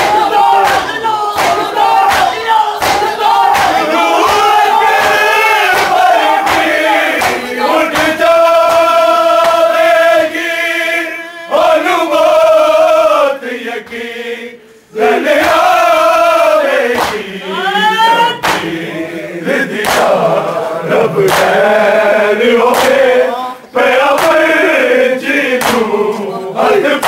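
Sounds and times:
chest-beating thuds: 0.0 - 9.7
men chanting in unison: 0.0 - 27.0.

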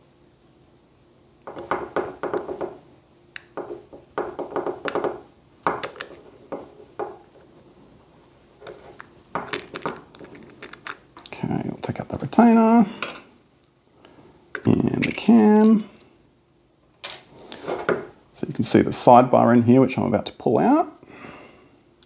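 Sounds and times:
metal lock parts clicking: 5.8 - 6.2, 8.6 - 11.3.

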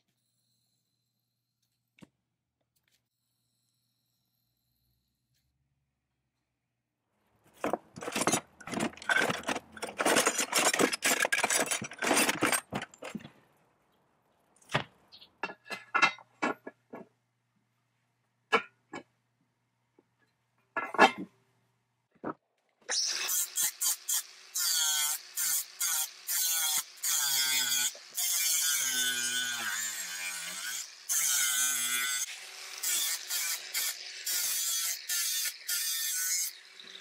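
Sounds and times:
metal hand tools clattering: 7.6 - 13.3.

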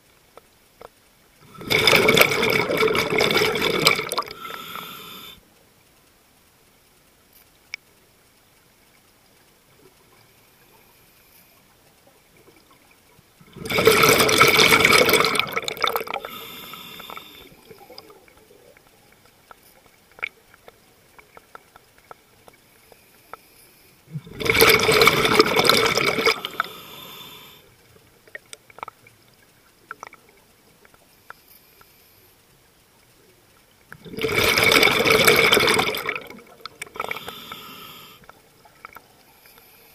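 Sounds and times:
underwater regulator bubbles: 1.4 - 5.3, 13.4 - 18.9, 24.1 - 27.4, 33.9 - 38.1
small clicks: 5.9 - 13.1.

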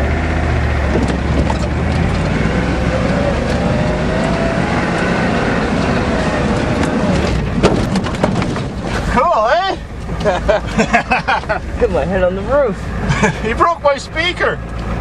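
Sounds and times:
diesel truck engine under load: 0.0 - 15.0
short knocks and rattles: 0.9 - 2.3, 6.8 - 9.1.

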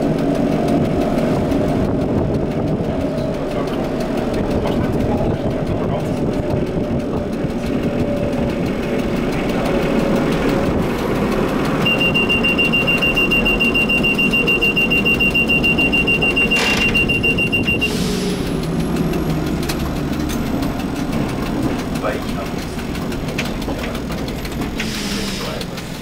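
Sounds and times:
tram running on track: 0.0 - 26.0
pulsing high-pitched tone: 11.8 - 18.0.

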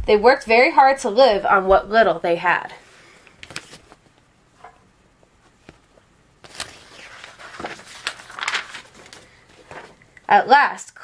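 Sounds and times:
book pages rustling: 3.3 - 4.2, 5.4 - 10.0.

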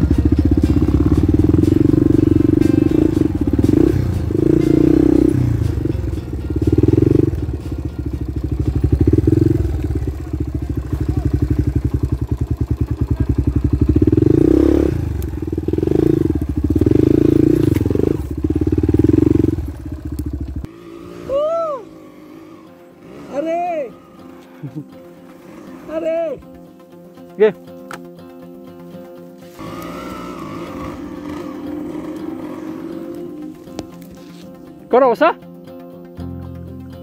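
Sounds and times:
dirt bike engine revving: 0.0 - 26.4, 29.4 - 34.3.

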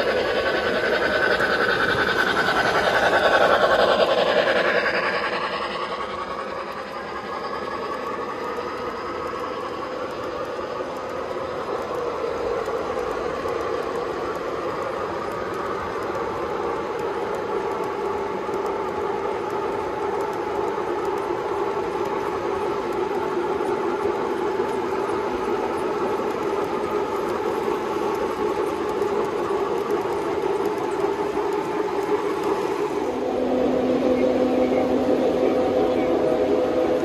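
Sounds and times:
model train running on track: 0.0 - 37.0.

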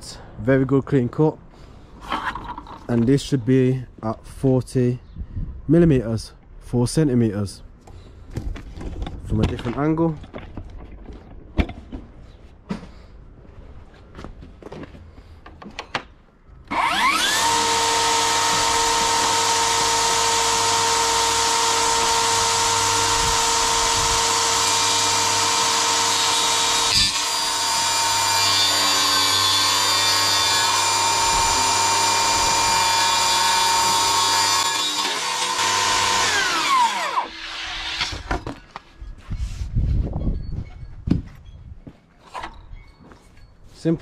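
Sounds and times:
saw ripping through board: 16.7 - 38.5
table saw blade whining: 16.7 - 38.6.

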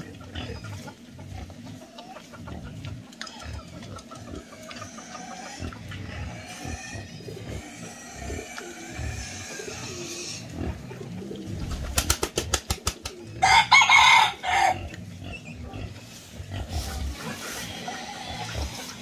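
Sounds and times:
piglets grunting and snuffling: 0.0 - 12.4, 14.4 - 19.0
rooster crowing: 13.4 - 14.8.

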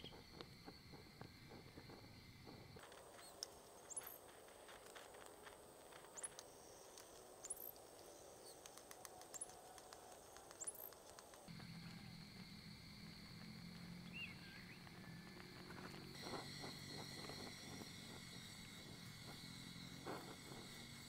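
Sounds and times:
high rising bird chirps: 14.0 - 21.0.

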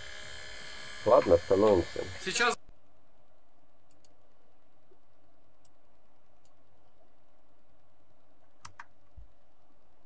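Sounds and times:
computer mouse clicks: 3.8 - 4.2, 8.6 - 9.0.

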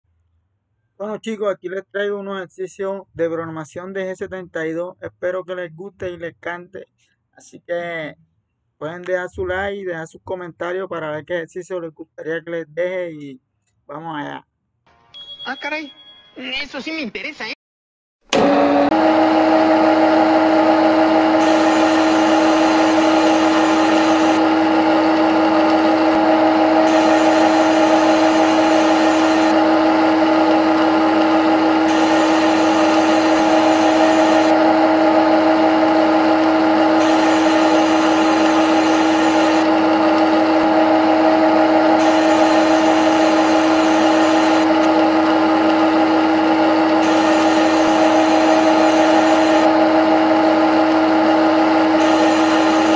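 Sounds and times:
lathe spindle hum: 18.4 - 52.9.

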